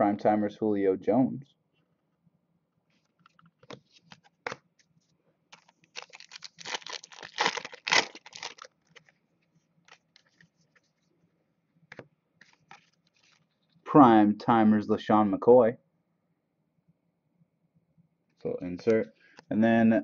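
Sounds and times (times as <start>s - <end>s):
cards rustling and clicking: 3.0s - 4.9s, 5.5s - 9.2s, 9.9s - 11.0s, 11.9s - 13.5s
foil wrapper tearing and crinkling: 5.6s - 9.1s.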